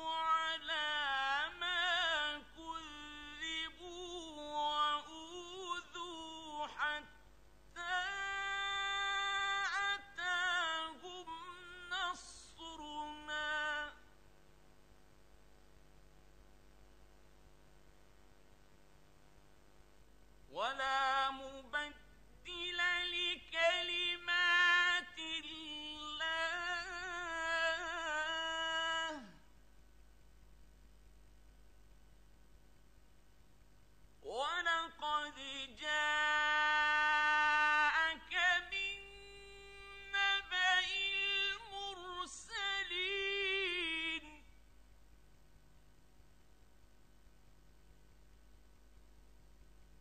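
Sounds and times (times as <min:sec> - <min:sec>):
man chanting melodically: 0:00.0 - 0:07.2, 0:20.5 - 0:29.4, 0:34.3 - 0:44.5.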